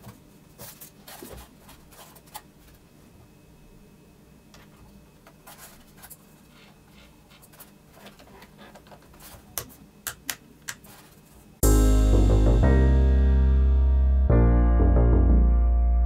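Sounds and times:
music: 11.6 - 16.0.

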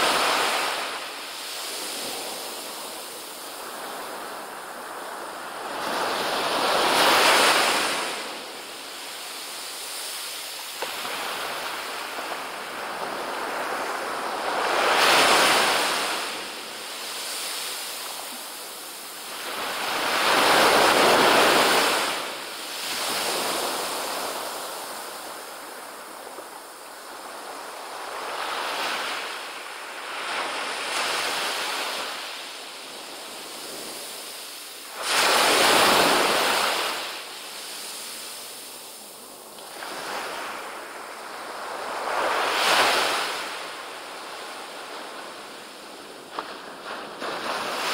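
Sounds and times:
small waves on sandy beach: 0.0 - 47.9.

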